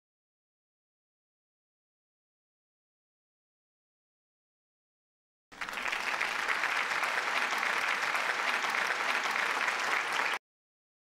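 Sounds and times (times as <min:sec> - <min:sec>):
crowd applause: 0:05.5 - 0:10.4.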